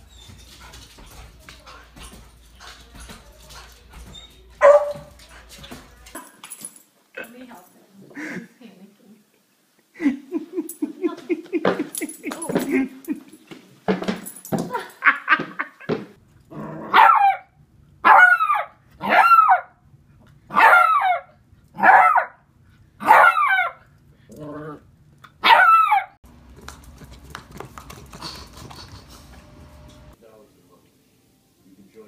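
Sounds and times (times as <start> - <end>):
puppy barking: 4.6 - 5.2, 16.9 - 19.8, 20.5 - 22.4, 23.0 - 23.8, 25.4 - 26.2.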